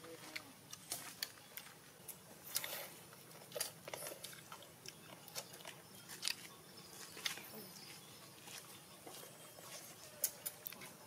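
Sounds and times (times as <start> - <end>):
chewing crunchy chicken: 2.4 - 7.4.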